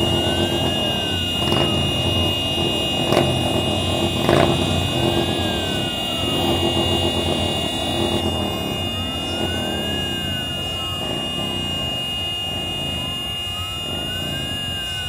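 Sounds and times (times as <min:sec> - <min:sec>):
air-raid siren wailing: 0:00.0 - 0:15.0
motorcycle engines revving: 0:00.0 - 0:15.0.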